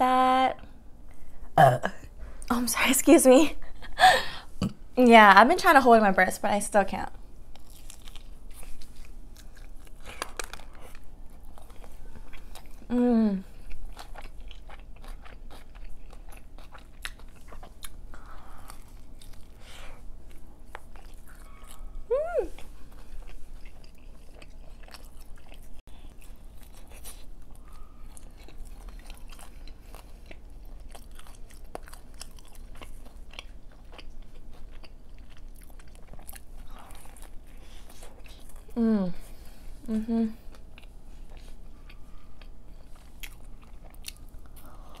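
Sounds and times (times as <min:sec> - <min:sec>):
chewing crisp pizza: 0:07.4 - 0:45.0
person humming mm: 0:12.9 - 0:13.5, 0:22.1 - 0:22.6, 0:38.8 - 0:39.2, 0:39.8 - 0:40.5.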